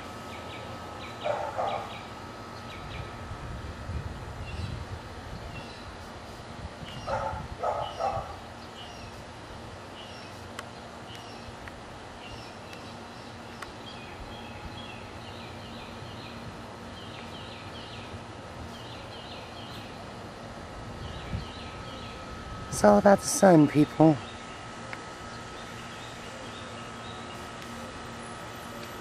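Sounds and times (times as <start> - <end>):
small birds chirping: 0.2 - 3.2, 4.4 - 6.1, 6.8 - 9.3, 9.9 - 20.1, 21.0 - 27.8
dog barking: 1.2 - 1.9, 7.1 - 8.4.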